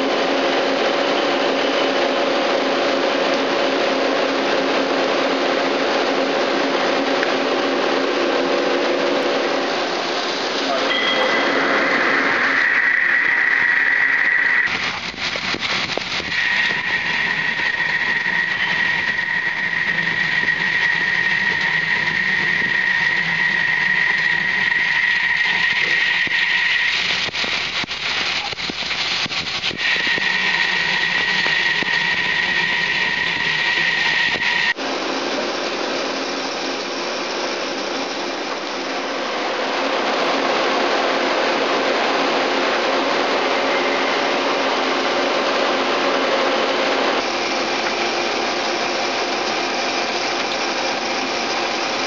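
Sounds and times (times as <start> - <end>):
lathe high whine: 0.0 - 52.0
low machine hum: 0.0 - 52.0
coolant spray hiss: 9.3 - 40.0, 45.9 - 52.0.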